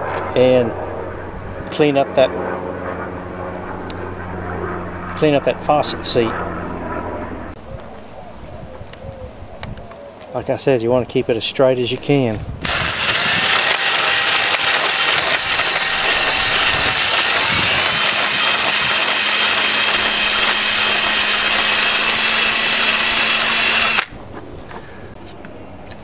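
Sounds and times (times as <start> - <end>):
drill whining: 12.6 - 24.1
grinding stone on brass: 12.7 - 24.0.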